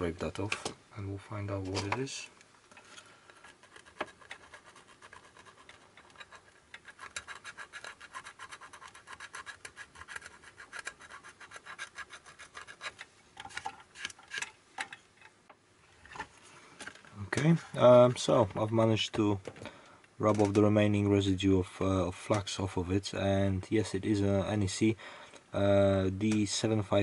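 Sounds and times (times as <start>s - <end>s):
scraping on a circuit board chip: 3.3s - 14.5s.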